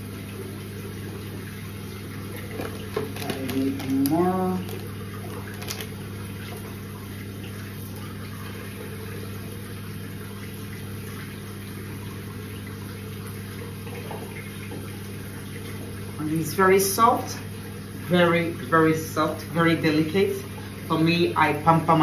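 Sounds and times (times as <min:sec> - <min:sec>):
tap water running into sink: 0:00.0 - 0:09.4.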